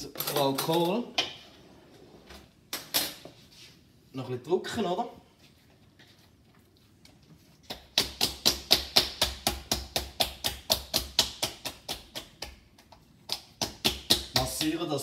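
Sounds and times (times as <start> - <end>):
hands slapping a stomach: 7.6 - 14.8.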